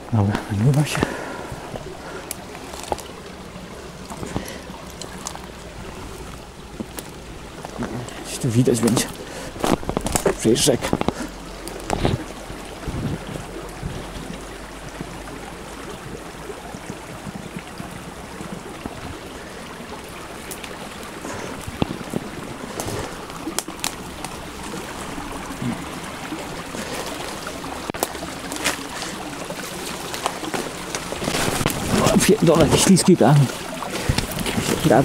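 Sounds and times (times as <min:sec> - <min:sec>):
river flowing: 0:00.0 - 0:35.0
dry twigs snapping and rustling: 0:02.2 - 0:03.4, 0:04.0 - 0:08.0, 0:08.8 - 0:13.4, 0:21.6 - 0:24.5, 0:27.9 - 0:32.2.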